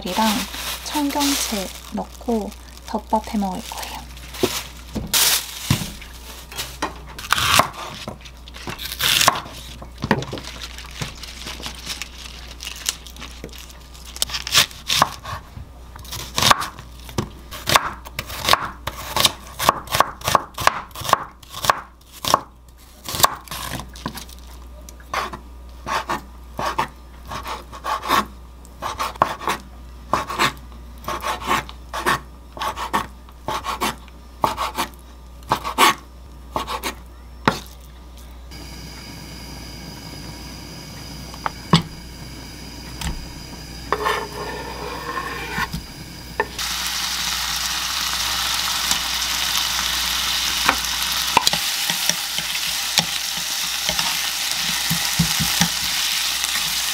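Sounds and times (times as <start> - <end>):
handling noises: 0.0 - 7.2.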